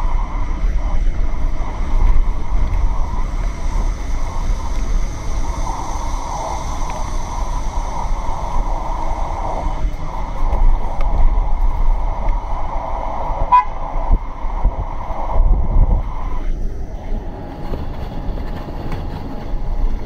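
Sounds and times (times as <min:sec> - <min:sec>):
bus cabin rumble: 0:00.0 - 0:20.0.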